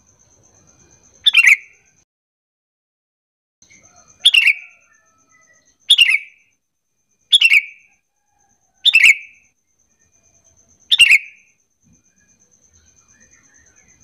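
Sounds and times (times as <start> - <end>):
bird calling with falling notes: 10.9 - 11.4.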